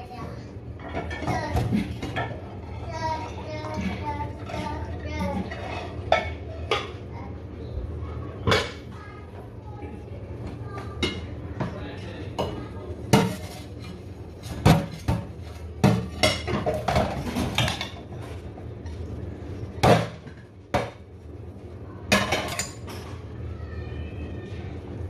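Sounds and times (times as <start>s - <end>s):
crockery clattering in steel sink: 14.5s - 18.1s, 22.1s - 23.1s.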